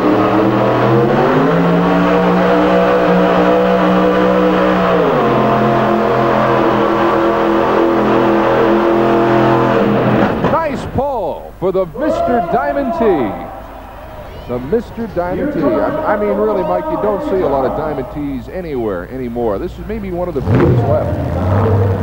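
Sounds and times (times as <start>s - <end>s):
truck engine at full throttle: 0.0s - 10.5s, 15.4s - 22.0s.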